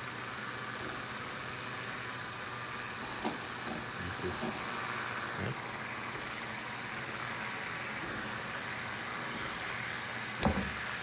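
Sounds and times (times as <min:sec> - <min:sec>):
fidget spinners whirring: 0:00.0 - 0:11.0
spinner knocking on table: 0:10.4 - 0:10.8.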